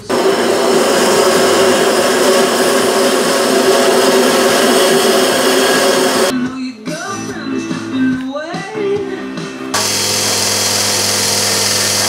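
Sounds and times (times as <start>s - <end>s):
music: 6.0s - 10.2s
bandsaw cutting plastic: 9.8s - 12.0s.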